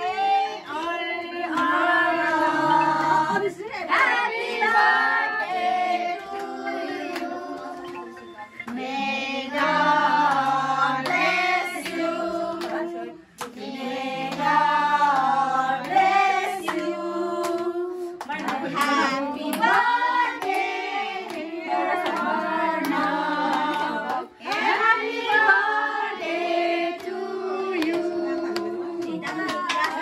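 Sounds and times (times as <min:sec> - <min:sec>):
group singing: 0:00.0 - 0:30.0
hand clapping in time: 0:14.3 - 0:25.5, 0:27.8 - 0:30.0.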